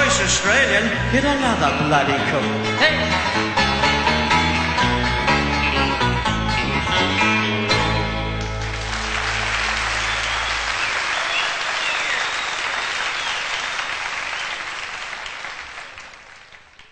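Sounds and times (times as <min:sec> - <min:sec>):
audience applause: 0:08.4 - 0:16.9.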